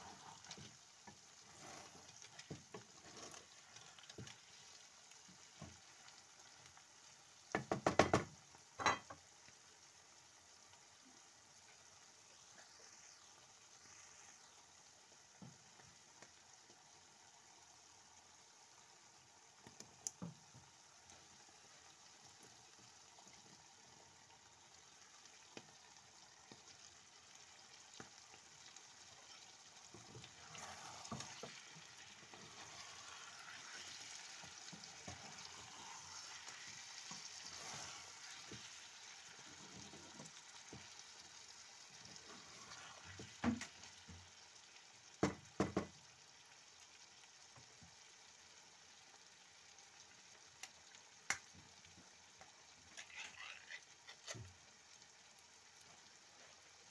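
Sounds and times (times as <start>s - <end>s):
wooden spatula stirring: 0.0s - 6.0s, 29.2s - 40.9s, 52.9s - 54.4s
food sizzling in a frying pan: 0.0s - 56.9s
small clicks of chickpeas: 50.5s - 51.5s.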